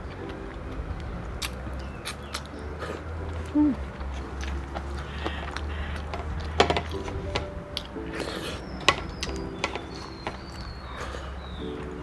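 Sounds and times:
soft background music: 0.0s - 12.0s
mouth eating sounds: 1.4s - 6.6s.

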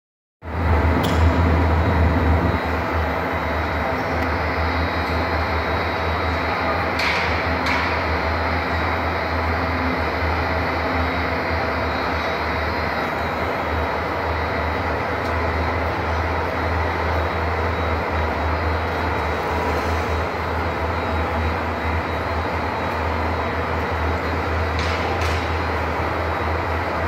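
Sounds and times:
hydraulic power unit drone: 0.4s - 27.0s.

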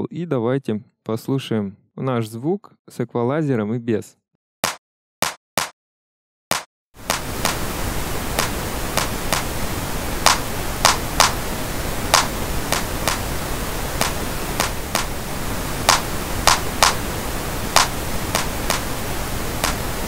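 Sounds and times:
steady pink noise: 7.0s - 20.0s
looped bongo hits: 12.1s - 13.2s, 15.9s - 17.0s, 17.8s - 18.8s.

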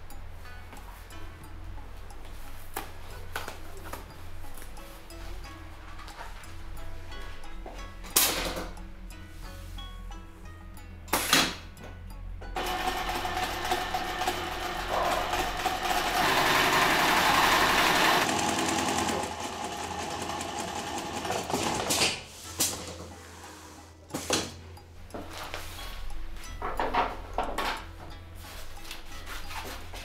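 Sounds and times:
sewing machine stitching: 12.6s - 22.2s.

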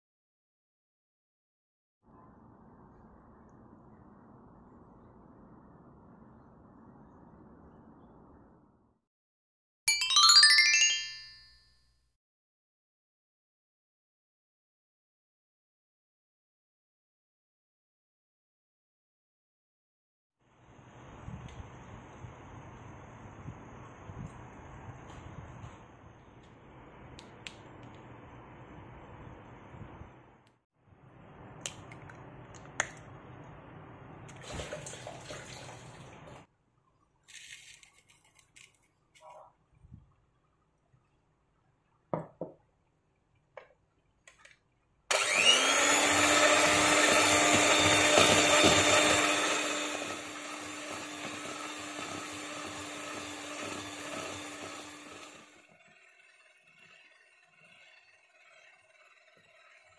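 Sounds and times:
sugar pouring: 37.2s - 38.9s
electric hand mixer whisking batter: 45.1s - 59.9s.

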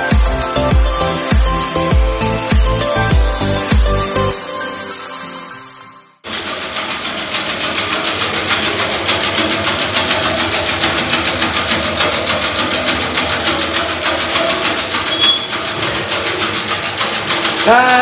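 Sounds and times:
music: 0.0s - 6.3s, 8.0s - 18.0s
rhythmic machinery noise: 6.2s - 18.0s.

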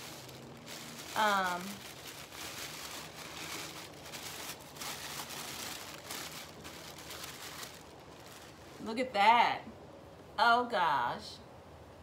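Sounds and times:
wrapping paper crinkling: 0.0s - 8.9s.

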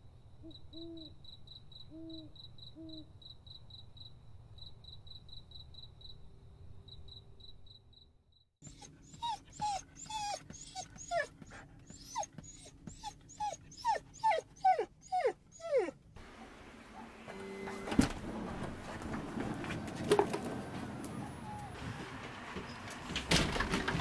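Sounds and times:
insects chirping: 0.2s - 8.4s
dog whining: 8.6s - 16.0s, 21.0s - 22.2s.

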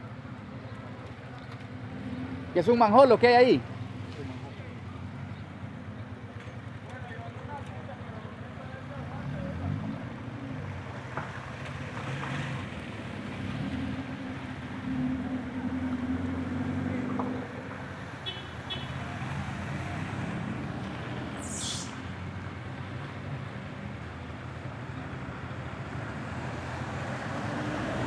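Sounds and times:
traffic noise: 0.0s - 28.0s
brief hiss: 21.4s - 22.0s.

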